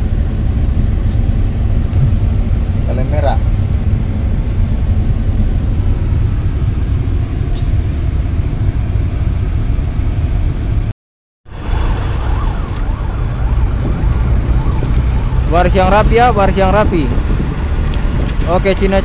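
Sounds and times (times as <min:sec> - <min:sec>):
wavering rising and falling tone: 0:02.0 - 0:02.9.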